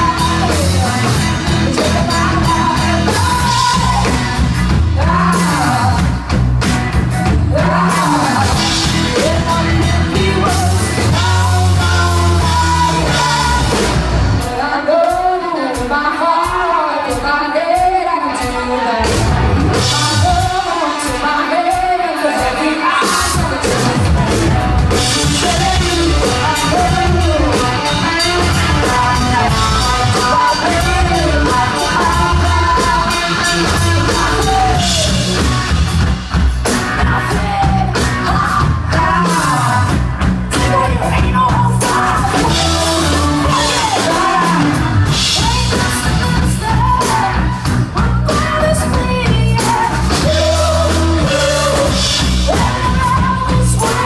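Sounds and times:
woman singing: 0.0 - 6.2, 7.3 - 35.9, 36.6 - 54.0
bass guitar: 0.0 - 54.0
drum kit: 0.0 - 54.0
electric guitar: 0.0 - 54.0.

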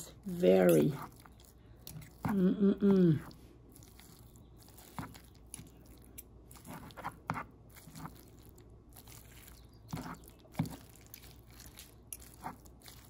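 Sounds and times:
fork tearing braised beef: 3.6 - 13.0.

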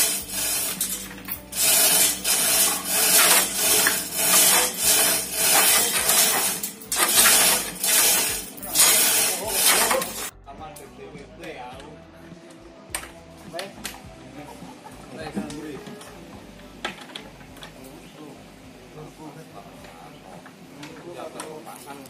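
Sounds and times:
rhythmic rasping of a hoist: 0.0 - 10.3.

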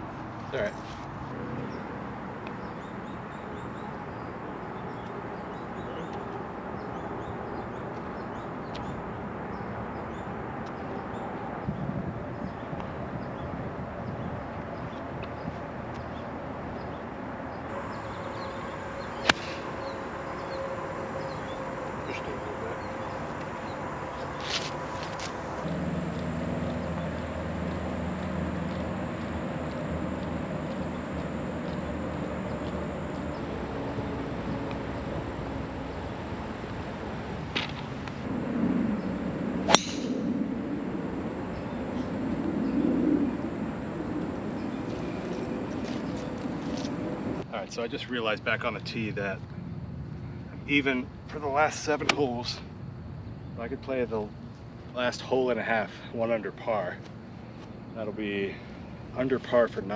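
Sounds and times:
steady low hum: 17.6 - 59.9
golf club striking ball: 19.2 - 19.7, 39.7 - 40.3.

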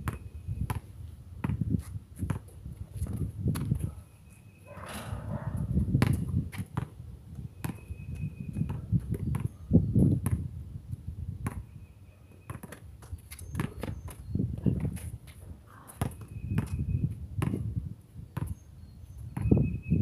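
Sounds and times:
basketball bouncing on concrete: 0.0 - 3.9, 5.5 - 7.0, 7.6 - 10.5, 11.4 - 11.8, 12.5 - 15.1, 15.8 - 17.8, 18.4 - 18.6, 19.3 - 19.7
footstep scuffs: 12.7 - 14.2.

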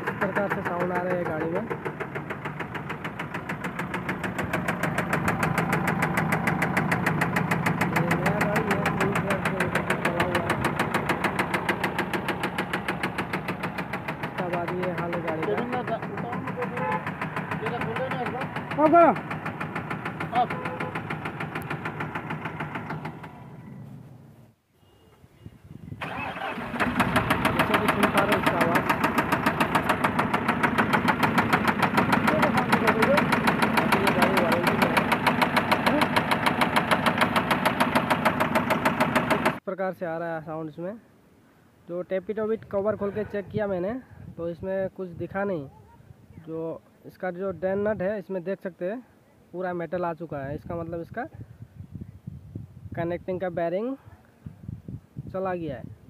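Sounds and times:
sharp regular engine knock: 0.0 - 23.7, 26.0 - 39.6
truck engine idling: 0.0 - 24.5, 26.0 - 39.6.

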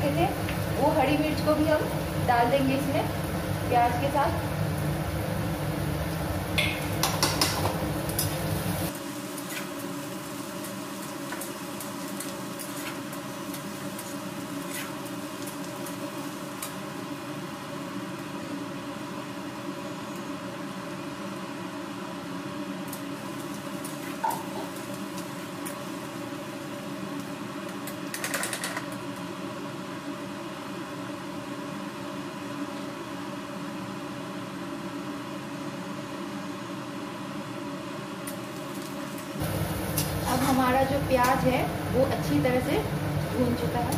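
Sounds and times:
onions sizzling in oil: 0.0 - 28.2, 38.1 - 43.9.

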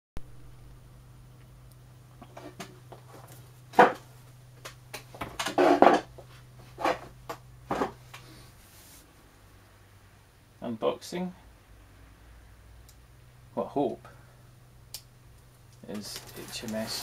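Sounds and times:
low steady hum: 0.2 - 17.0
objects knocking on workbench: 3.8 - 4.0.

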